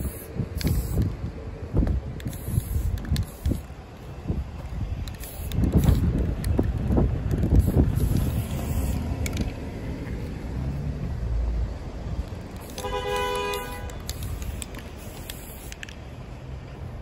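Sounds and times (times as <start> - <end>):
wind rumbling on microphone: 0.0 - 12.7
car horn blast: 12.8 - 13.9.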